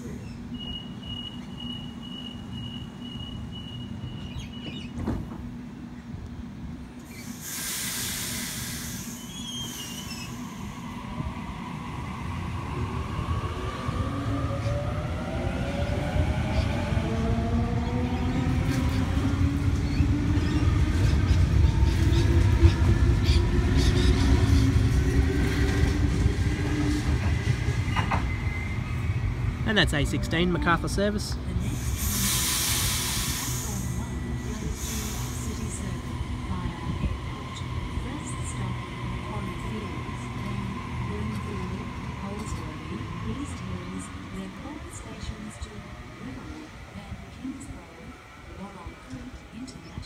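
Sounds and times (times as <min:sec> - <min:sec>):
train air hiss: 0:07.0 - 0:10.9, 0:31.6 - 0:36.0.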